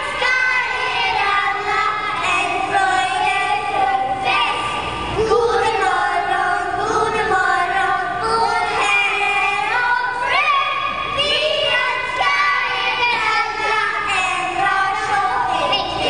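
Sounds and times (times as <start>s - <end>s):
children's choir singing: 0.0s - 16.0s.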